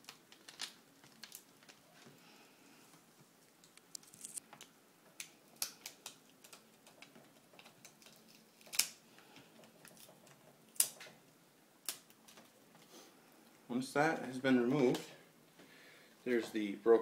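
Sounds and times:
light clicks and crackles: 0.0s - 11.2s
rasping peels of adhesive: 5.2s - 9.0s.

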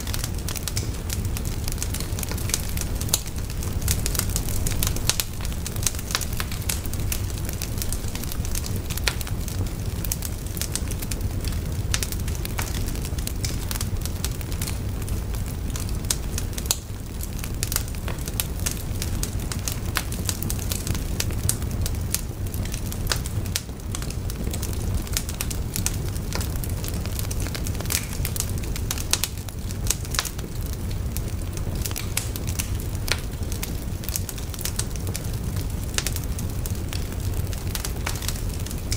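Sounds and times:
flames rushing: 0.0s - 38.9s
wood fire crackling: 0.0s - 38.9s.

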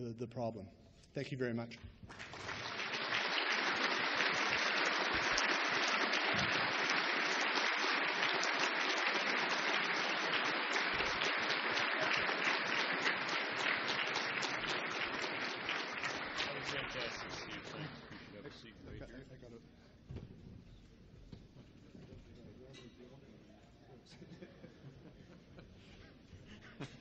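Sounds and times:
audience applauding: 2.1s - 18.4s.

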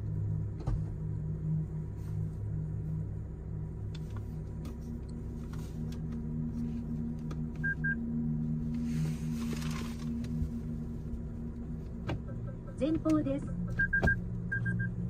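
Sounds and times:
steady low hum: 0.0s - 15.0s
high electronic beeps: 12.4s - 15.0s.

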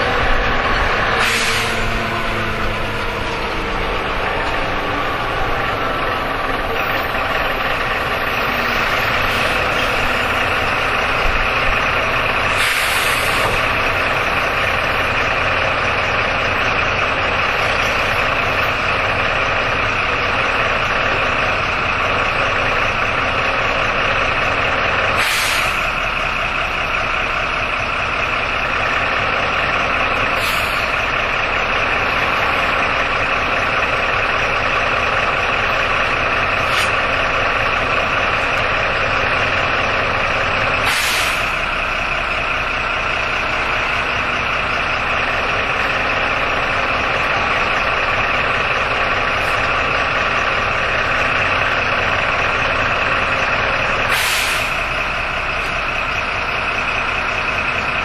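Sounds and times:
bus engine whine: 0.0s - 58.0s
air hissing: 1.2s - 1.9s, 12.5s - 13.6s, 25.2s - 25.9s, 40.8s - 41.6s, 54.1s - 54.9s.

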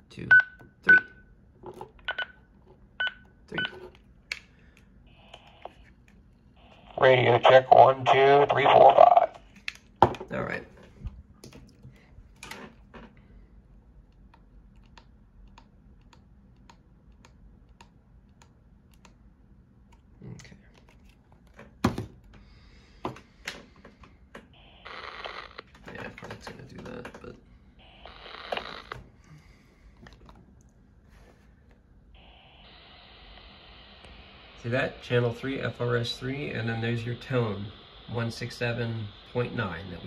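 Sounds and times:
hissy radio noise: 6.6s - 9.4s, 24.6s - 25.6s, 27.8s - 28.9s, 32.2s - 40.0s.

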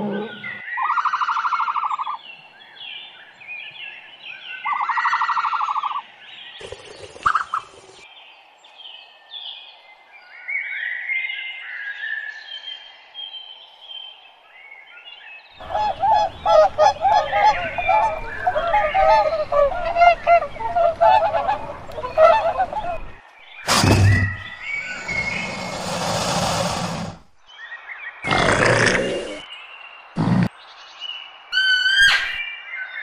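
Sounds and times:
bird chirping: 0.0s - 33.0s
flock of birds honking: 15.6s - 24.4s.

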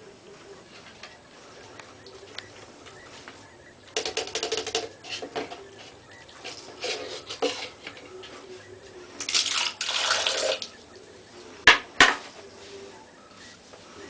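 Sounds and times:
water splashing in a bathtub: 9.3s - 10.7s.

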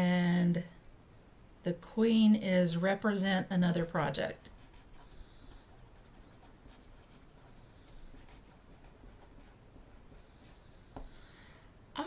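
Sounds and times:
pen scratching on paper: 4.5s - 10.7s.

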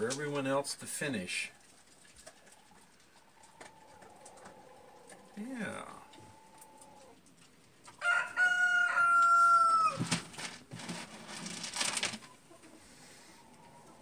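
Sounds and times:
rooster crowing: 8.0s - 10.0s
rustling and scuffling: 9.9s - 13.4s.

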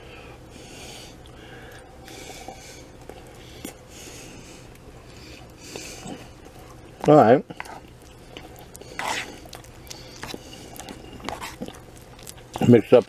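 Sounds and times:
soft breathing through nose: 0.0s - 6.8s, 7.5s - 11.6s
person chewing food: 0.5s - 13.0s.

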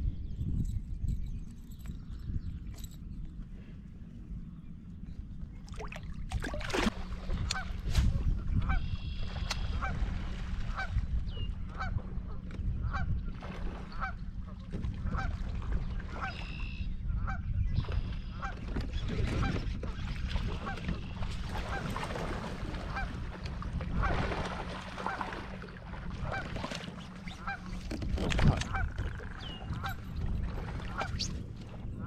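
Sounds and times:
steady low rumble: 0.0s - 16.2s
geese honking: 22.8s - 23.2s, 27.2s - 27.7s.

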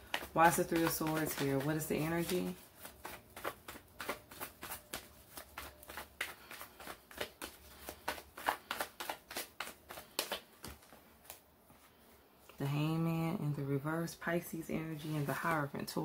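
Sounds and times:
cards being shuffled: 0.0s - 11.4s.

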